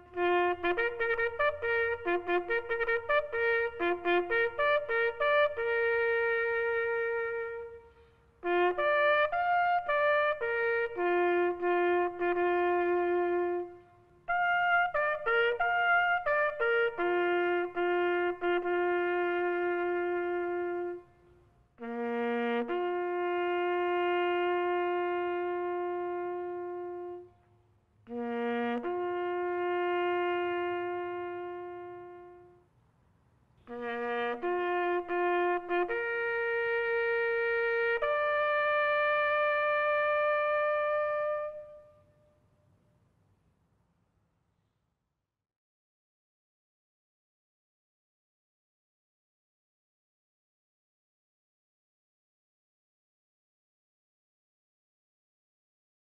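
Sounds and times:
bugle call: 0:00.0 - 0:21.2, 0:33.6 - 0:42.2.

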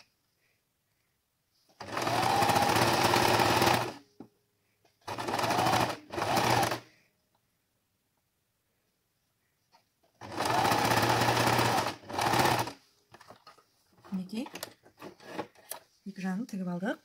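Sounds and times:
sewing machine stitching: 0:01.7 - 0:04.0, 0:05.0 - 0:06.8, 0:10.2 - 0:12.8, 0:14.1 - 0:15.8.

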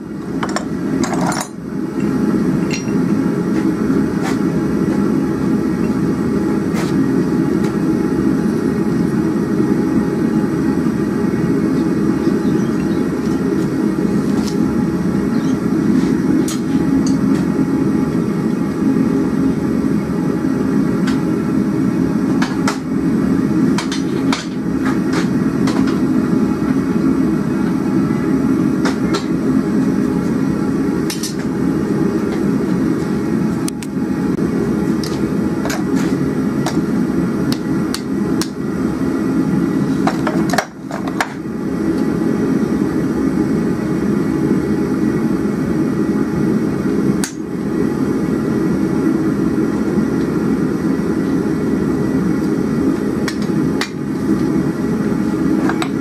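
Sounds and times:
gas forge burner rushing: 0:00.0 - 0:56.0
hammer striking steel on anvil: 0:02.6 - 0:03.0.

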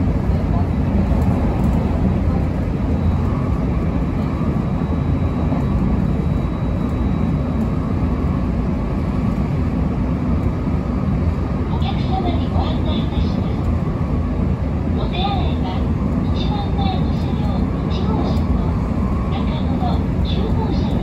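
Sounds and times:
train running rumble: 0:00.0 - 0:21.0.

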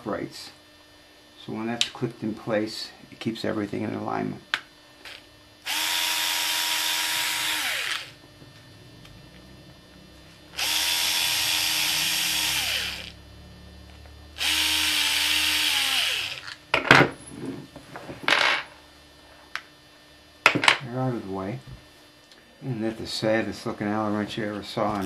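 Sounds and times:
cordless drill running: 0:05.1 - 0:08.2, 0:10.5 - 0:13.2, 0:14.4 - 0:16.6.

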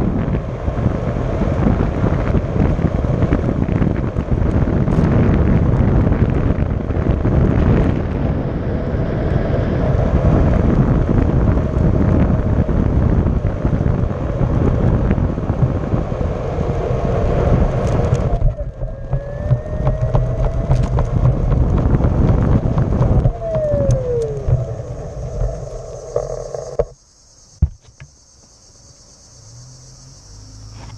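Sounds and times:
wind buffeting microphone: 0:00.0 - 0:26.9
electric motor whine: 0:09.4 - 0:27.0
tyre rumble on asphalt: 0:10.8 - 0:26.9.

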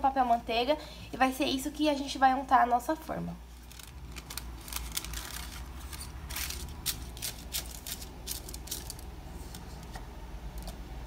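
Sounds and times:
parchment paper crinkling: 0:03.5 - 0:10.0.

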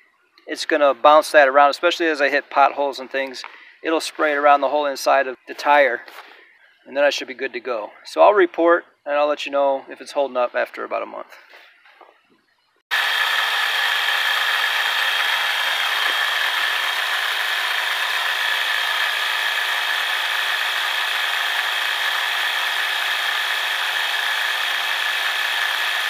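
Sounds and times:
air compressor buzzing: 0:12.9 - 0:26.0.

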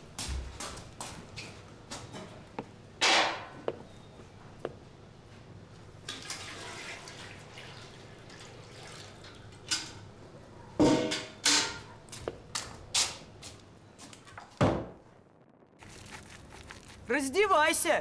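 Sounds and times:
water pouring into washtub: 0:06.1 - 0:09.6
water splashing: 0:15.6 - 0:17.4.

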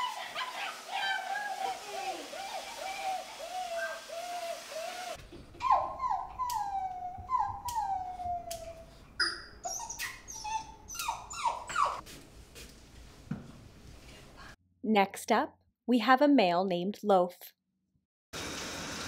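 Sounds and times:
puppy howling: 0:00.0 - 0:08.8
puppy whimpering: 0:02.3 - 0:12.0.

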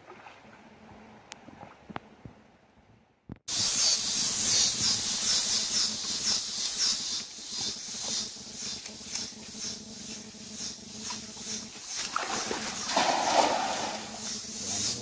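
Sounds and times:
insects buzzing chorus: 0:03.5 - 0:15.0.

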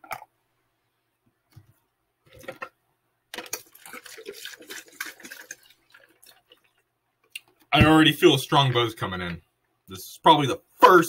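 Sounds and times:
liquid pouring into plastic cup: 0:02.3 - 0:06.9.

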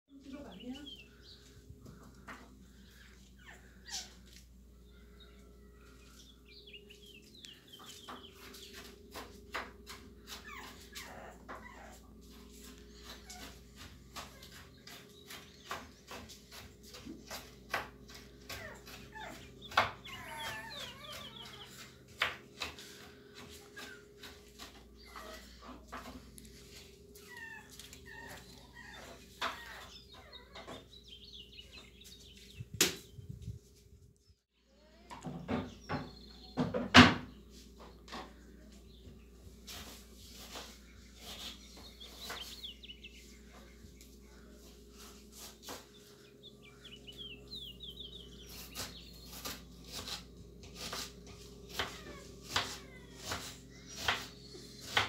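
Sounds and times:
faint hum: 0:00.1 - 0:29.3
puppy whining: 0:02.9 - 0:04.5, 0:10.2 - 0:14.6, 0:18.4 - 0:22.1, 0:23.4 - 0:26.4, 0:27.0 - 0:32.0, 0:51.6 - 0:54.1
puppy yelping: 0:03.4 - 0:04.4, 0:10.3 - 0:12.1, 0:18.5 - 0:21.8, 0:27.2 - 0:30.7.

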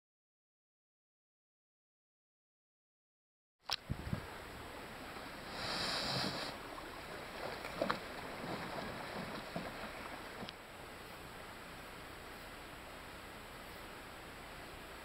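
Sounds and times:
wind hiss: 0:03.7 - 0:11.8
lapping water: 0:05.1 - 0:10.6
canoe hull scraping over sand: 0:05.5 - 0:06.6.

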